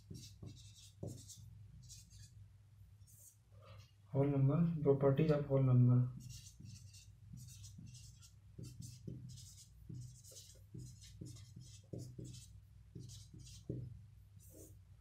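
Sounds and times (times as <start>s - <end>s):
marker scratching on whiteboard: 0.0s - 2.4s, 3.0s - 3.4s, 6.1s - 14.8s.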